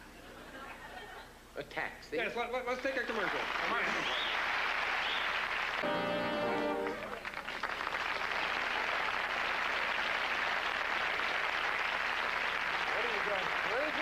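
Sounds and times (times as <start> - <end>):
audience applauding: 2.8 - 14.0
short musical chord: 5.8 - 7.2.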